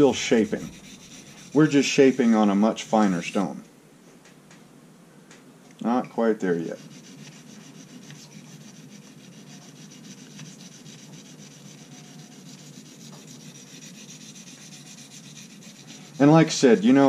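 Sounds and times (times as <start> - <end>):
knife blade rubbing on sharpening stone: 0.0 - 2.3, 6.7 - 16.8.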